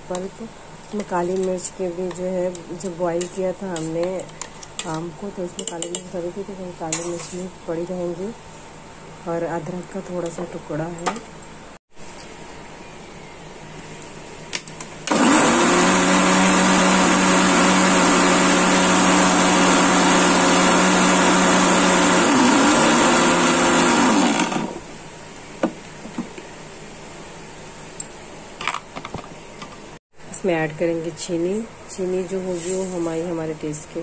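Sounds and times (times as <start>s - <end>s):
mixer grinder motor hum: 15.0s - 24.9s.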